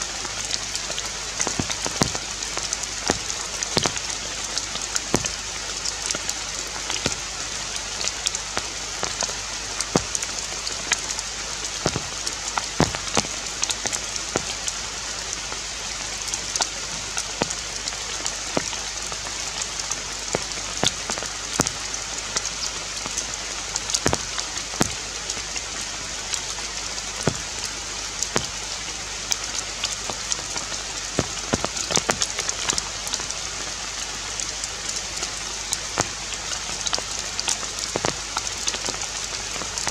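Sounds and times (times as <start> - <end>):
forest ambience hiss: 0.0 - 39.9
irregular ticks and taps: 0.2 - 7.2, 8.0 - 14.8, 16.5 - 17.6, 18.2 - 19.3, 20.2 - 25.0, 27.1 - 28.6, 29.3 - 33.3, 35.7 - 39.9.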